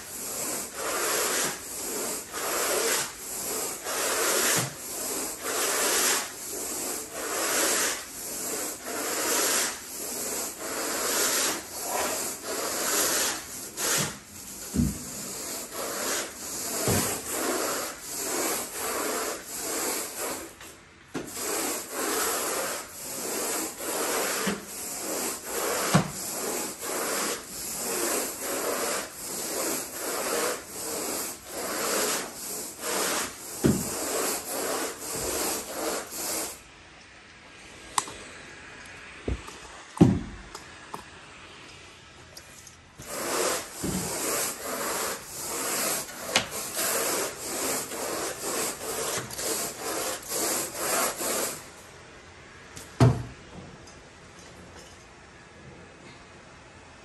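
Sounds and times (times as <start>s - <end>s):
carpet rake scratching carpet: 0.0s - 20.6s, 21.2s - 36.6s, 43.0s - 51.8s.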